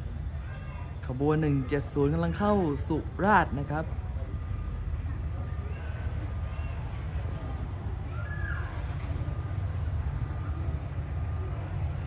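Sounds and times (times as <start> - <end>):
crickets chirping: 0.0 - 12.0.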